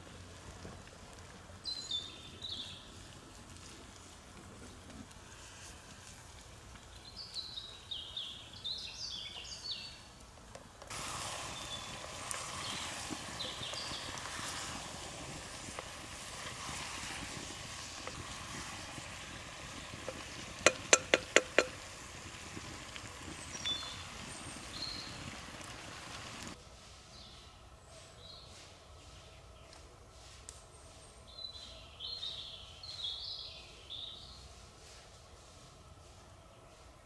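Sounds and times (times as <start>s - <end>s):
campfire hissing and crackling: 0.0s - 37.0s
small birds singing: 1.7s - 3.0s, 6.8s - 10.2s, 11.5s - 14.3s, 22.6s - 25.5s, 27.1s - 29.9s, 30.7s - 34.5s.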